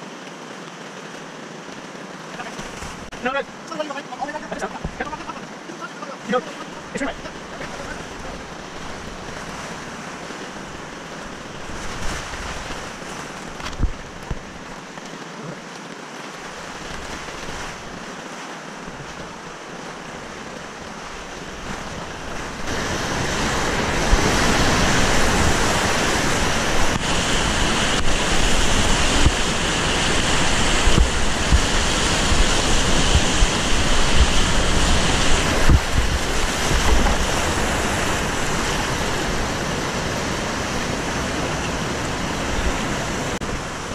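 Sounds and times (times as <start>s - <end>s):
waves splashing over boat: 0.0s - 43.9s
whitewater rushing: 0.0s - 43.9s.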